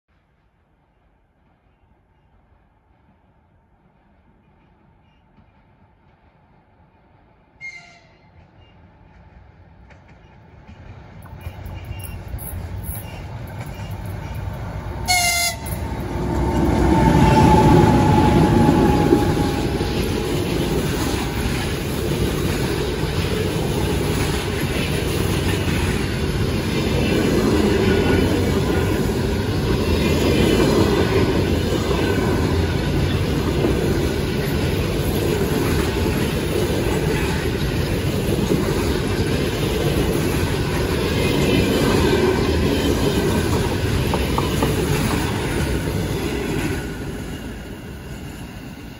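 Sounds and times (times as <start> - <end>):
train wheels on rails: 0.1 - 48.9
locomotive horn blast: 15.0 - 19.9.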